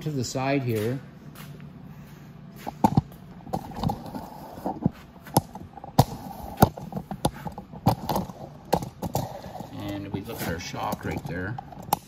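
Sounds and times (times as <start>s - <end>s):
footsteps on concrete: 0.6s - 3.2s.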